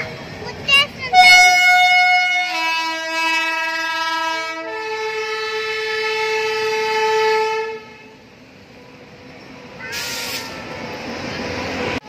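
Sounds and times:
train horn blast: 1.1s - 8.2s, 9.8s - 10.9s.

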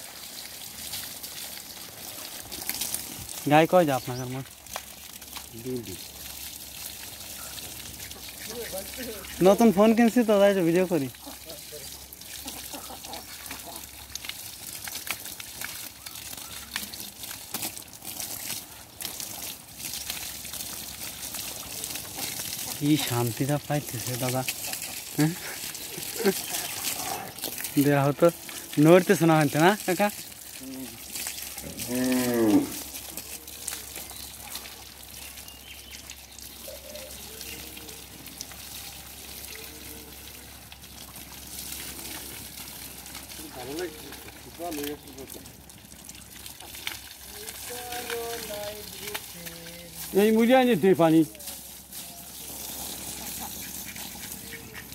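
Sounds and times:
hose water splashing on cow: 0.0s - 54.9s
cow mooing: 31.6s - 32.9s.

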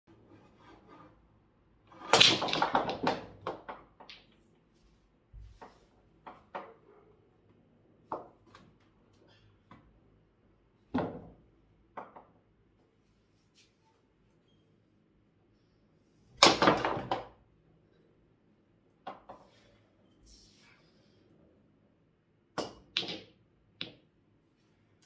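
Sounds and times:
pool balls clicking: 1.9s - 4.4s, 22.6s - 24.1s.

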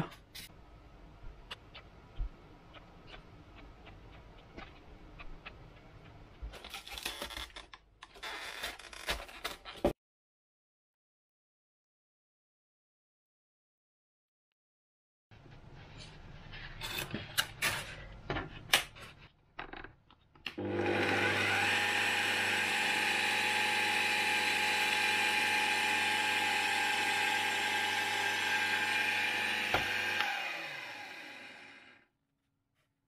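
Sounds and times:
drill press motor whining: 20.6s - 32.0s
drill press spinning down: 20.6s - 32.0s.

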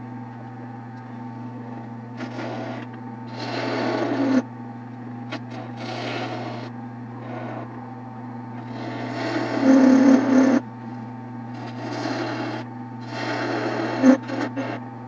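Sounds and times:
tool scraping spinning wood: 2.2s - 4.4s, 5.3s - 7.8s, 8.6s - 10.7s, 11.5s - 14.8s
wood lathe humming: 2.2s - 4.4s, 5.3s - 7.9s, 8.6s - 14.8s.

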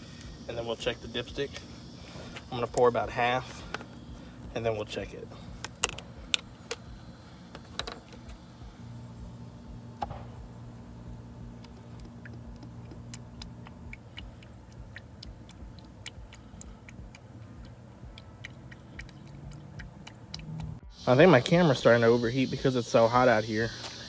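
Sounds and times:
low steady hum: 0.0s - 24.0s
oil glugging through a funnel: 11.4s - 20.8s.

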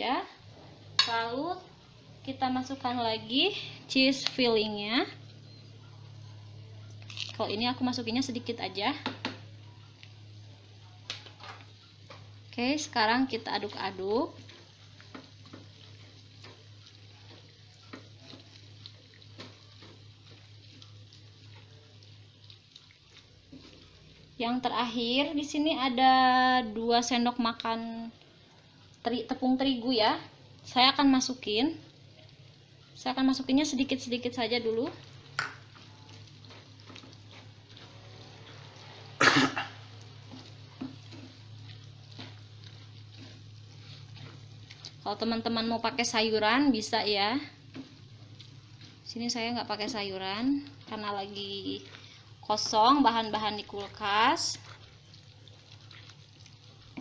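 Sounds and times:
spatula tapping and scraping pan: 9.0s - 9.4s, 14.5s - 18.6s
wooden spatula scraping a pan: 23.1s - 24.3s, 33.9s - 39.2s, 39.8s - 57.0s
person coughing: 39.2s - 39.8s.

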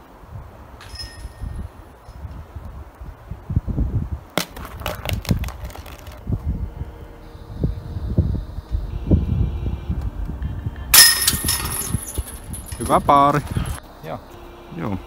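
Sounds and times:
chains rattling and clinking: 11.0s - 13.3s.

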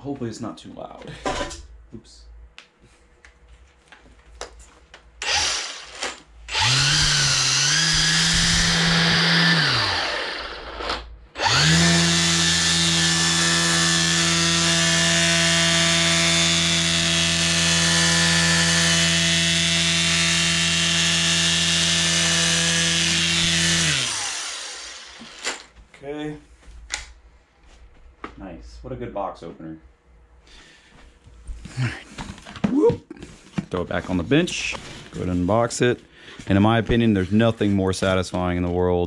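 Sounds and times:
string trimmer motor running: 5.2s - 25.6s.

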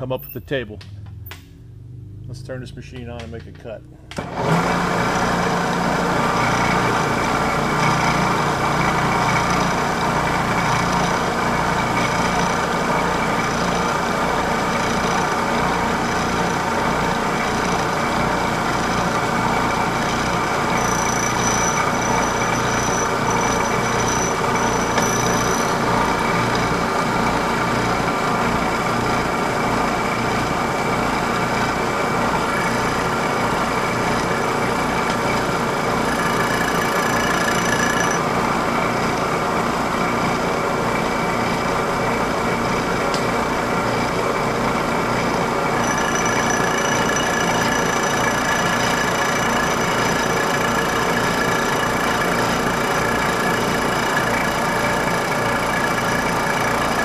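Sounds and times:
milling machine cutting brass: 6.2s - 26.8s, 32.4s - 38.2s, 45.8s - 57.0s.

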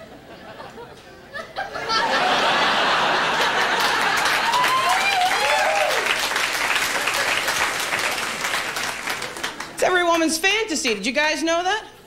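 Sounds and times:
audience laughing: 0.0s - 5.8s, 6.4s - 9.8s
audience applauding: 2.3s - 9.9s.

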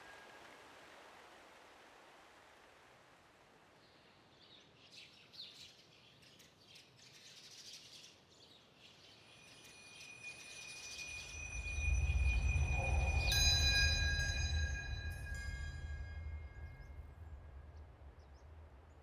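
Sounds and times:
soft hiss: 0.0s - 19.0s
faint bird chirping: 3.8s - 19.0s
steady high tone: 9.6s - 17.5s
low rumbling drone: 11.1s - 19.0s.

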